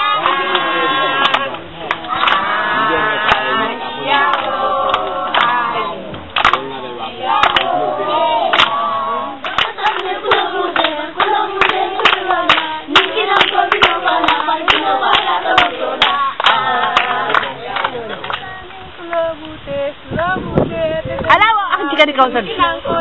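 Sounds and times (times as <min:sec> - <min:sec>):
hands clapping to a beat: 0:00.0 - 0:02.6, 0:03.2 - 0:03.6, 0:04.2 - 0:06.8, 0:07.4 - 0:07.8, 0:08.5 - 0:19.2
children singing: 0:00.0 - 0:19.0.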